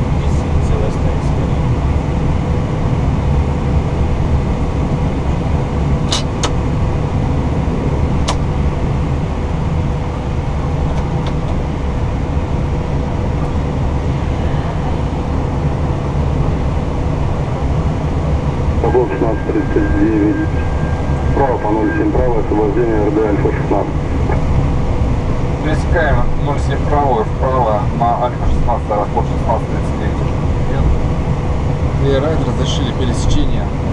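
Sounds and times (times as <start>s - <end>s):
airliner cockpit rumble: 0.0s - 33.9s
faint steady hum: 0.0s - 33.9s
sharp clicks: 8.2s - 8.4s.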